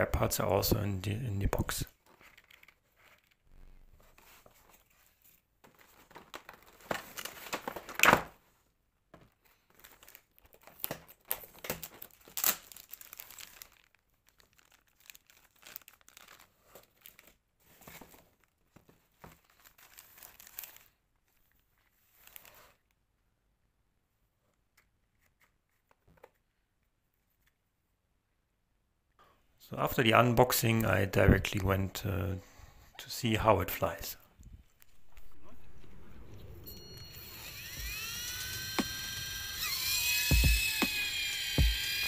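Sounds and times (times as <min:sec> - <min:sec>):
plastic and cardboard crinkling: 0:01.9 - 0:08.6, 0:09.2 - 0:22.9.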